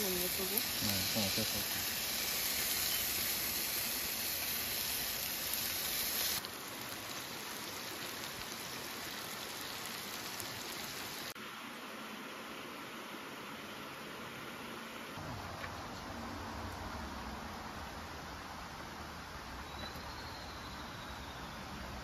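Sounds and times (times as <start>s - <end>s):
fish sizzling on a grill pan: 0.0s - 11.4s.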